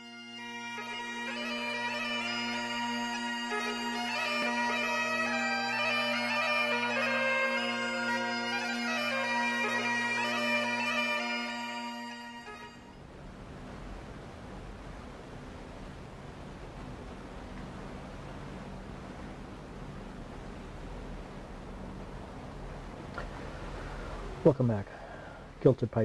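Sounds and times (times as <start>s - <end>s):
bagpipe music: 0.0s - 13.1s.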